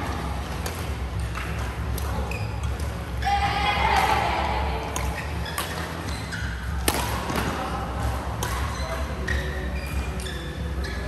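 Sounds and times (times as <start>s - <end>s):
rackets hitting shuttlecock: 0.0s - 3.0s, 3.9s - 9.5s
shoes squeaking: 0.0s - 3.3s, 4.8s - 11.0s.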